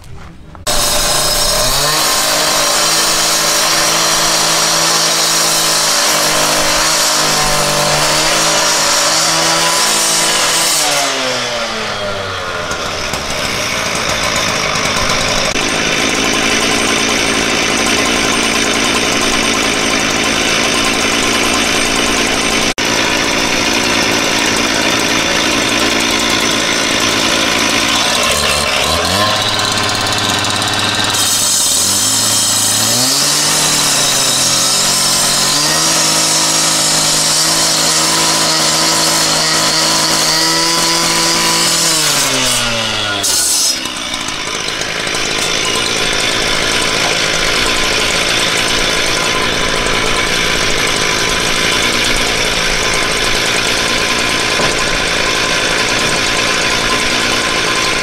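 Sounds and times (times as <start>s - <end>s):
cutter grinding through brick: 0.0s - 58.0s.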